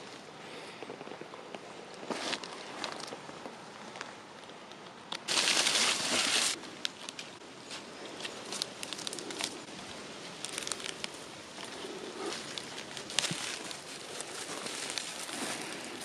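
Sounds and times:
twigs snapping: 2.3s - 16.0s
rustling of dry plant matter: 5.3s - 16.0s.

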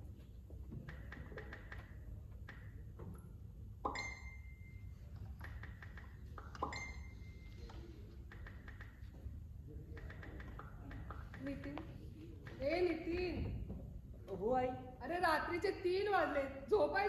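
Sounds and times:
light ringing taps: 3.9s - 4.6s
sharp pings: 3.9s - 5.0s, 6.6s - 7.4s.

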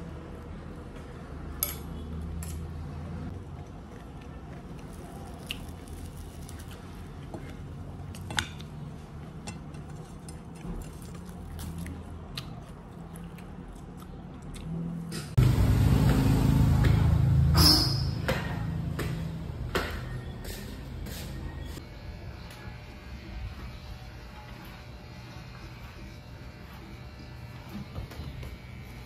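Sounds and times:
crispy food crunching: 3.5s - 7.6s, 10.0s - 14.8s.

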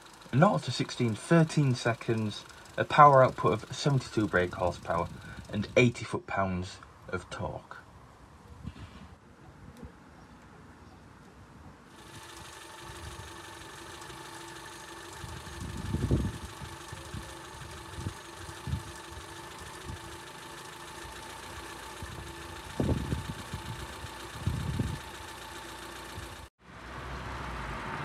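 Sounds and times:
car engine idling: 0.0s - 5.8s, 12.0s - 26.5s.

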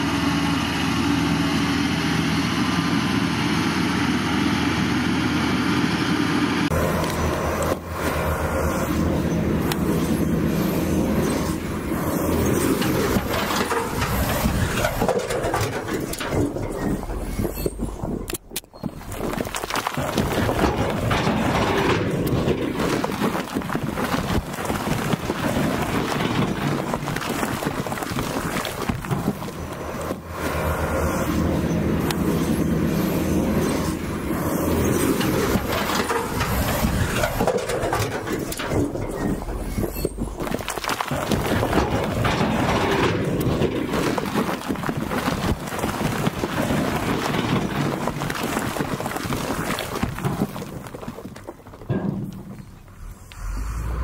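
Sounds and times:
diesel engines running: 0.0s - 54.0s
rocks tumbling and clattering: 6.6s - 53.9s
stone rattling out of truck beds: 9.3s - 30.3s, 31.3s - 53.1s.

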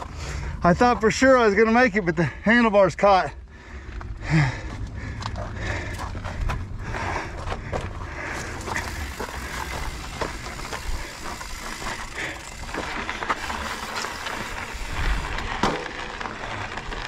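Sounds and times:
steady low rumble: 0.0s - 17.0s
bike clicks and rattles: 3.6s - 17.0s.

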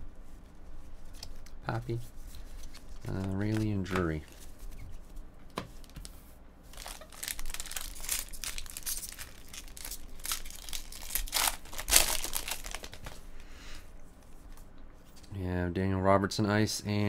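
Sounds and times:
foil wrapper crinkling and tearing: 6.7s - 13.2s.

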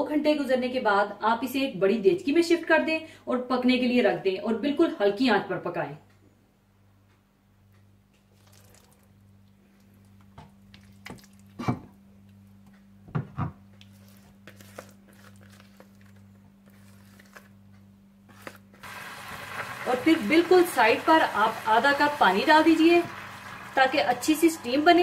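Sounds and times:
squishy handling sounds: 8.2s - 11.6s, 13.7s - 18.8s.

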